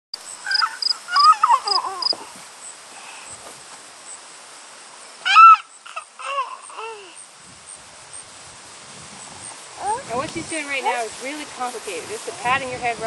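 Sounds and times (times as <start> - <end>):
high sliding animal calls: 0.4 - 2.4, 5.2 - 7.2.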